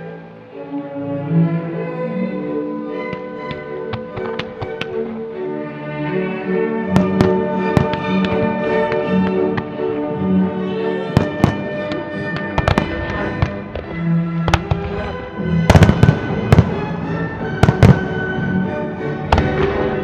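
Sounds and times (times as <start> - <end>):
music soundtrack: 0.0 - 20.0
firework shells bursting: 3.1 - 5.2, 6.9 - 10.0, 11.1 - 18.4, 19.2 - 20.0.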